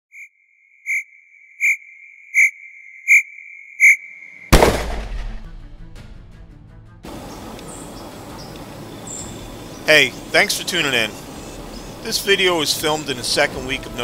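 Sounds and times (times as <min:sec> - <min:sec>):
high electronic beeps: 0:00.1 - 0:04.5
steady electronic tone: 0:00.1 - 0:04.5
loud gunshot blast: 0:04.5 - 0:05.9.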